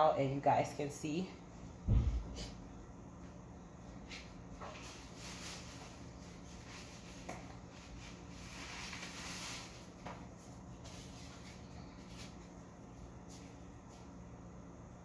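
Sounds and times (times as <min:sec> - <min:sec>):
low steady hum: 0:00.0 - 0:15.0
soft rustle: 0:04.0 - 0:14.1.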